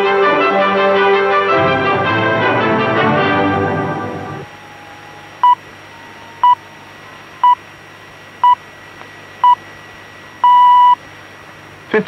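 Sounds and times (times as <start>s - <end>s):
radio reception hiss: 4.6s - 12.0s
short high beeps: 10.4s - 11.0s.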